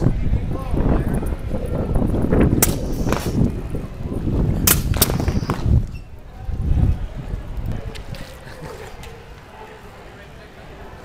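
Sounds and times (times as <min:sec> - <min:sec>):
air cannons popping: 0:02.6 - 0:03.5, 0:04.6 - 0:06.0.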